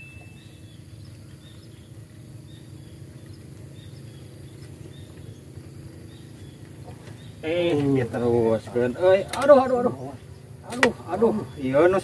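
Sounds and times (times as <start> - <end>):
ringing ding: 0.0 - 0.5
faint high chirps: 0.0 - 7.4
steady low rumble: 0.0 - 12.0.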